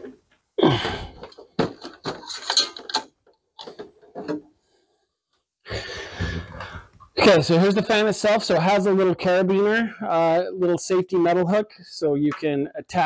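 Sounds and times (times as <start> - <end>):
handling knocks and rustles: 1.0 - 4.5.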